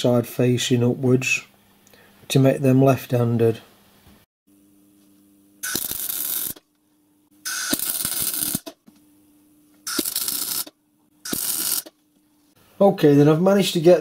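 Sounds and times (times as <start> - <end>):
steady low hum: 0.0 - 14.0
electric arc welding: 5.6 - 6.7, 7.4 - 8.8, 9.8 - 12.0.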